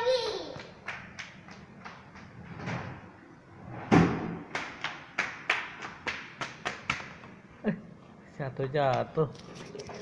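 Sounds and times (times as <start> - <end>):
loud thud: 3.7 - 4.6.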